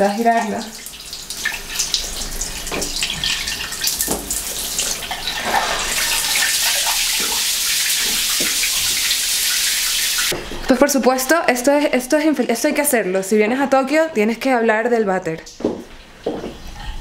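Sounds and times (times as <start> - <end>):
shower water splashing: 0.0 - 10.4.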